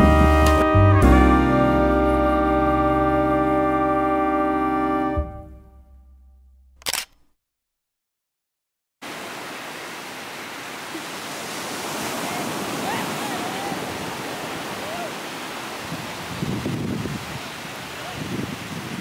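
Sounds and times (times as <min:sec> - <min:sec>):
background music: 0:00.0 - 0:06.4
short click: 0:06.8 - 0:07.3
ocean surf on beach: 0:09.0 - 0:19.0.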